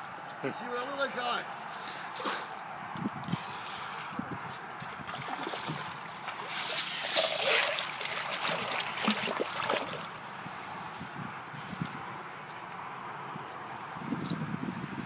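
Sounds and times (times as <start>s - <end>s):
water sloshing and dripping: 4.8s - 10.7s
pond water splashing: 4.8s - 10.8s.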